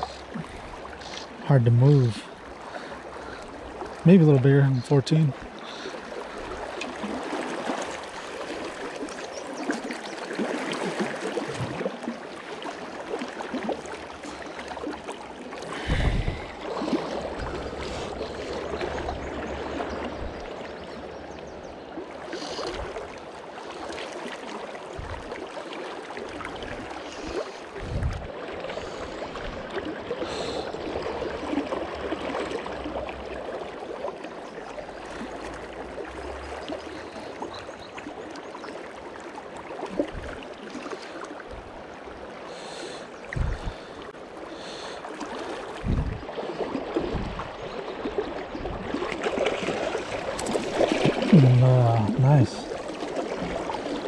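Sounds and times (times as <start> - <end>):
river current rushing and gurgling: 0.0 - 54.0
low thumps: 45.9 - 46.2.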